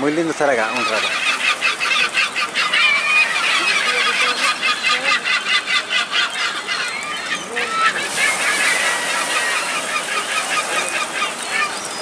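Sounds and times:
gulls calling: 0.0 - 12.0.

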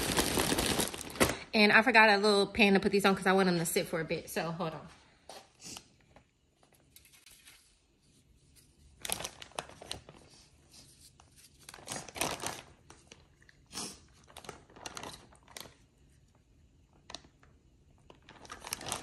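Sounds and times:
plastic bag crinkling: 0.0 - 1.6, 9.0 - 10.3, 11.6 - 13.4, 14.1 - 15.9, 17.0 - 19.0.

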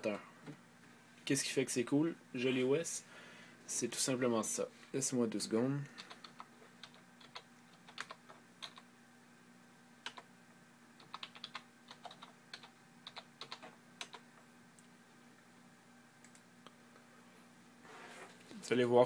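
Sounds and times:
low steady hum: 0.0 - 19.0
computer keyboard typing: 6.0 - 8.8, 11.0 - 14.2, 16.2 - 16.4.

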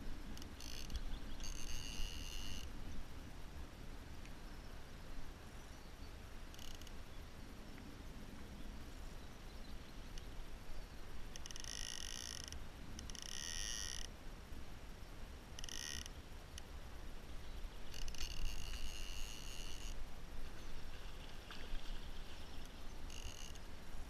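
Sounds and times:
fly reel ratchet buzzing: 0.4 - 2.7, 11.4 - 14.1, 15.6 - 16.1, 17.9 - 20.0, 23.1 - 23.6.

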